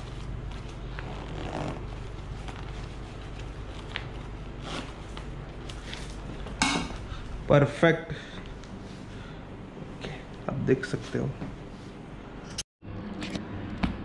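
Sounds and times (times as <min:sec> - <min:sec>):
steady low hum: 0:00.0 - 0:14.0
boot zip scraping and rustling: 0:00.6 - 0:03.9, 0:04.5 - 0:05.1.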